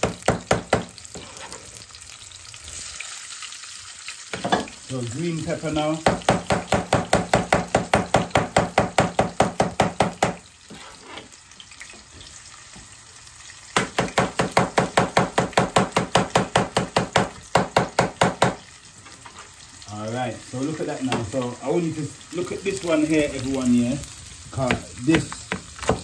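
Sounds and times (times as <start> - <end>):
knife chopping on cutting board: 24.6 - 26.0.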